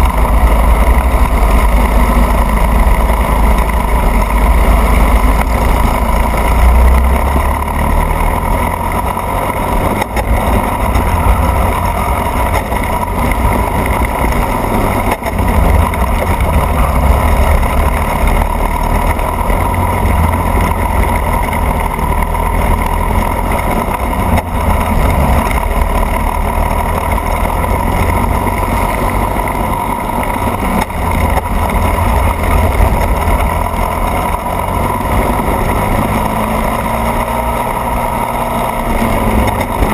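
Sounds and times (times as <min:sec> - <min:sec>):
go-kart engine running hard: 0:00.0 - 0:39.9.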